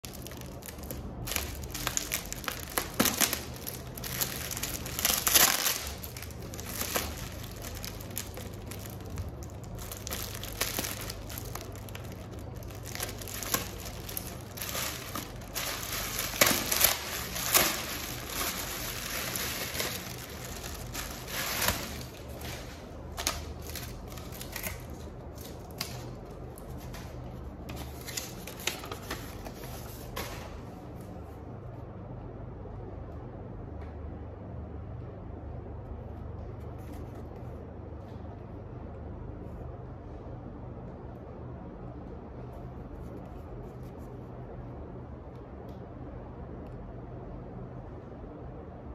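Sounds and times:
plastic packaging crinkling: 0.0s - 30.3s
paper sheet rustling: 0.0s - 30.6s.

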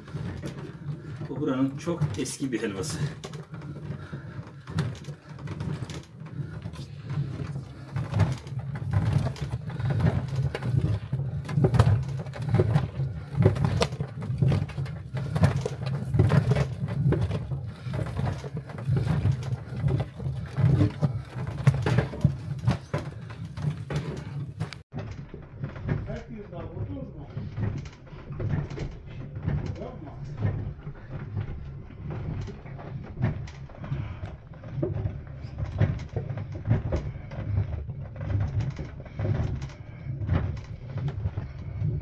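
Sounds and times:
paddle squelching thick mass: 2.6s - 24.6s.

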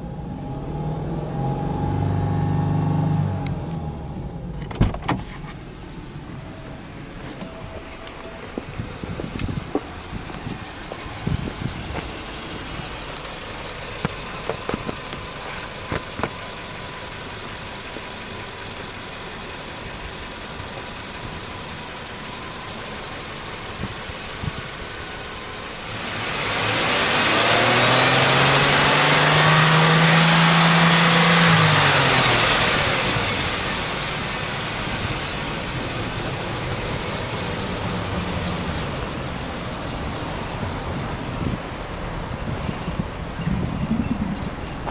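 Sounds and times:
engine revving: 0.0s - 4.6s, 21.2s - 39.1s
car engine idling: 3.3s - 44.9s
engine knocks: 7.4s - 25.8s.

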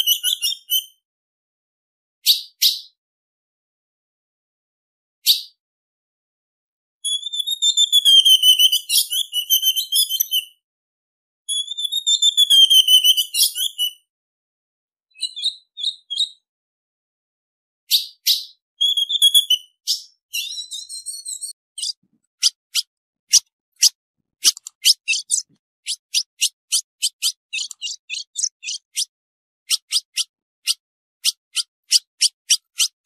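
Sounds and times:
bird calling: 21.8s - 29.1s.

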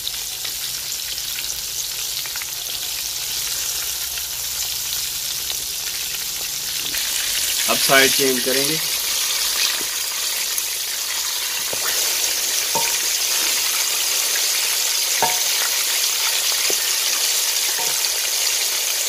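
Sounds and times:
chicken deep-frying in oil: 0.0s - 19.0s
spatula knocking against pan: 12.8s - 13.5s, 15.2s - 15.6s.

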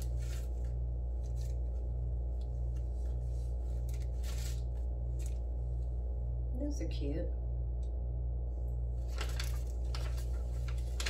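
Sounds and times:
fabric bag and paper rustling: 0.0s - 5.6s, 9.0s - 11.0s
steady low hum: 0.0s - 11.0s.

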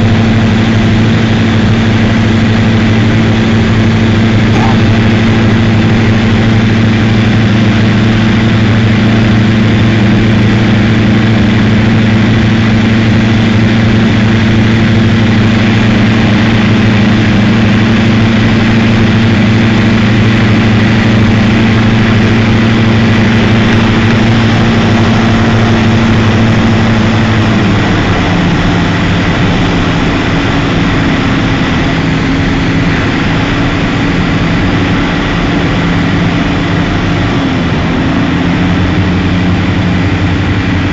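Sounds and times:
light aircraft engine droning: 0.0s - 40.9s.

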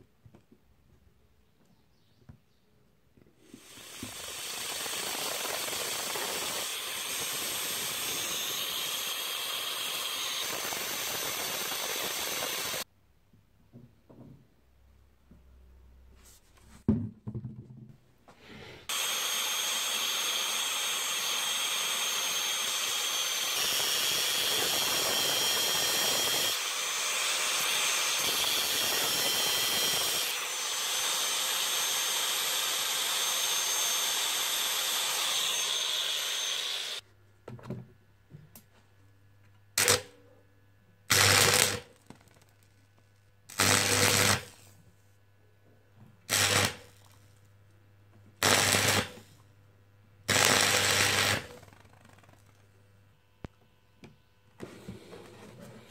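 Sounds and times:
welder humming: 3.4s - 12.9s, 18.9s - 37.0s, 41.1s - 42.1s, 43.5s - 44.7s, 48.4s - 49.4s, 50.3s - 52.4s
angle grinder on metal: 3.6s - 12.8s, 18.9s - 37.0s, 41.1s - 41.9s, 43.5s - 44.7s, 46.3s - 47.0s, 48.4s - 49.2s, 50.3s - 51.8s
arc welding crackling: 39.8s - 40.1s, 41.1s - 42.7s, 43.5s - 44.7s, 48.4s - 49.2s, 50.3s - 52.6s.

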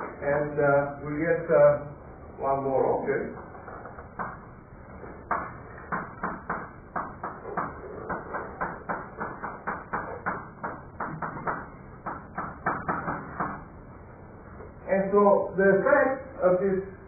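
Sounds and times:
chalk tapping on chalkboard: 5.3s - 13.7s.

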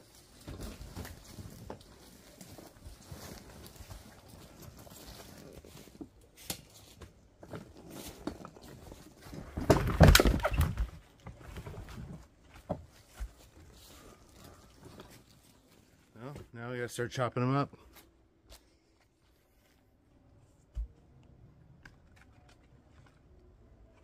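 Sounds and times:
wooden logs knocking and thudding: 7.0s - 13.7s.

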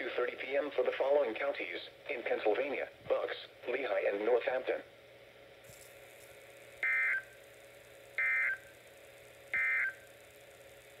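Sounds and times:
warbling digital data tones: 6.8s - 7.4s, 8.2s - 8.8s, 9.5s - 10.1s.

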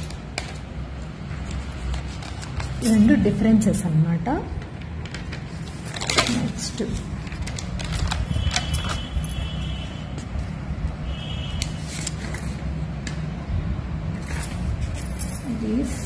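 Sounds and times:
paper pages turning: 0.0s - 3.1s, 5.0s - 9.5s, 11.5s - 12.8s.

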